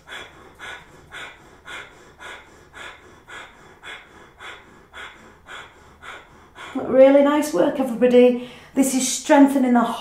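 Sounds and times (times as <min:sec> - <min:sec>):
sharp nasal exhalations: 0:00.0 - 0:06.9.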